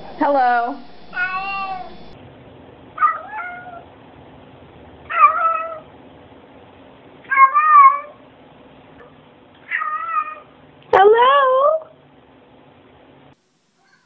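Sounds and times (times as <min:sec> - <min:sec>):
cat meowing: 0:01.2 - 0:01.9, 0:03.0 - 0:03.9, 0:05.1 - 0:05.8, 0:07.3 - 0:08.2, 0:09.6 - 0:10.5.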